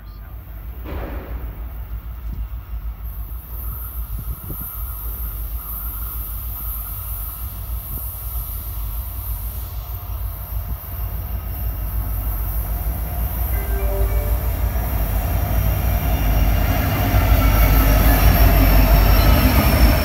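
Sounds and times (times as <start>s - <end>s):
diesel locomotives rumbling: 0.0s - 20.0s
faint high-pitched squeal: 13.5s - 15.5s.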